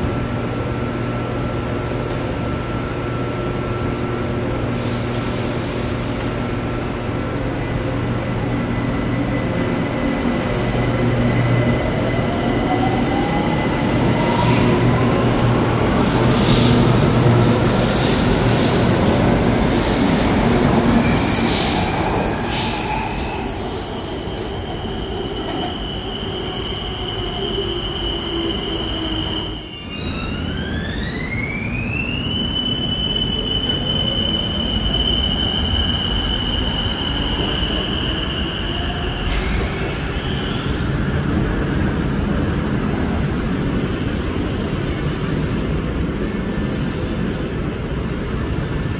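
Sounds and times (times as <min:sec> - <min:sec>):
train wheel squeal: 0:15.9 - 0:41.0.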